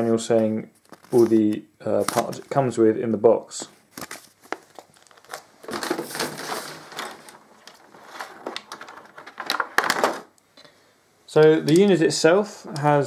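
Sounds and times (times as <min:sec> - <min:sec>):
paper and plastic rustling: 0:00.8 - 0:02.5, 0:03.9 - 0:10.3.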